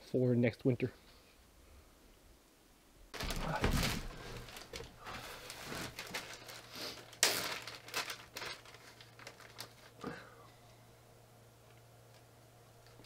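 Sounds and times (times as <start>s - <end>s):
plastic packaging crinkling: 3.1s - 10.1s.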